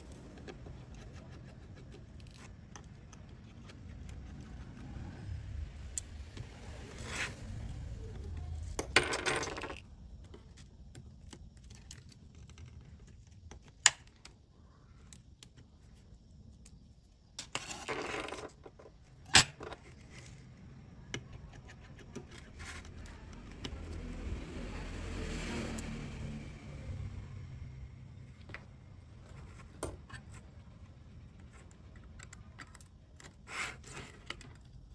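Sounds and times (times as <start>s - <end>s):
metal tools clattering on wooden table: 8.8s - 9.8s, 17.5s - 19.8s.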